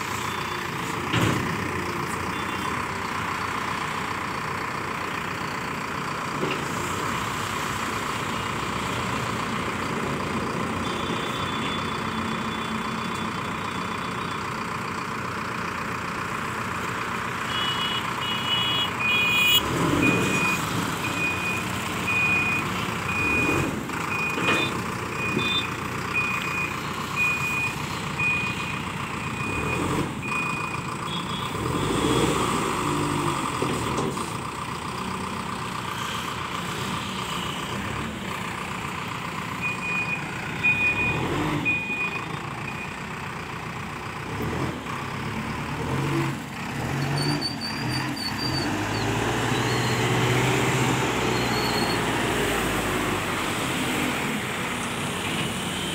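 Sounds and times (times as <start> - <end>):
backhoe engine running: 0.0 - 55.9
reversing alarm beeping: 0.2 - 0.8, 10.8 - 14.6, 17.5 - 31.9, 39.6 - 43.0, 47.0 - 52.9.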